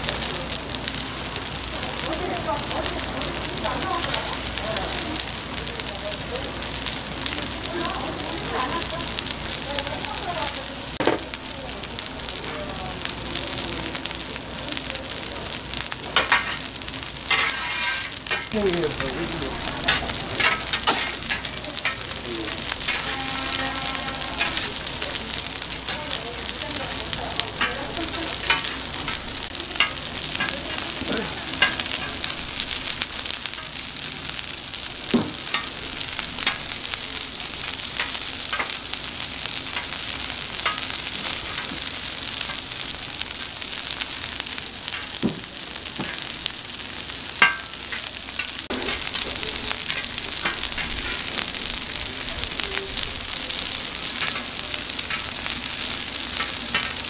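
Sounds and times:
patties sizzling in oil: 0:00.0 - 0:57.0
metal spatula scraping griddle: 0:16.2 - 0:18.5, 0:19.8 - 0:24.8, 0:27.6 - 0:29.2.

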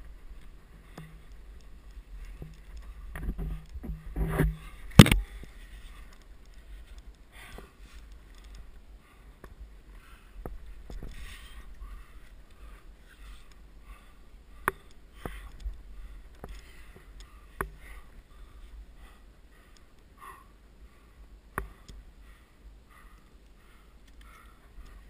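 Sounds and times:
sharp clicks and knocks: 0:00.9 - 0:05.5.

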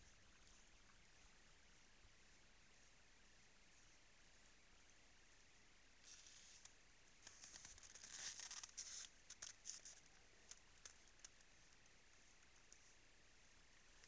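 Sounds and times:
animal gnawing frozen ground: 0:06.0 - 0:12.9.

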